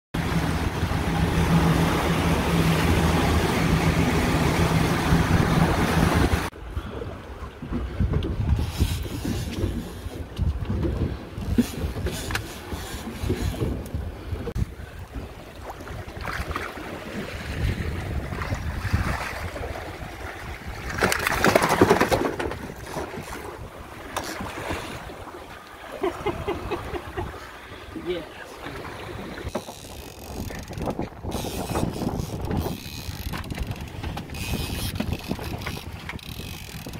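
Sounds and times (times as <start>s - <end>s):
churning wake: 0.1s - 36.9s
wind on microphone: 0.2s - 22.0s, 29.1s - 36.9s
outboard motor running: 0.2s - 36.9s
fish thrashing water splashing: 18.4s - 25.2s.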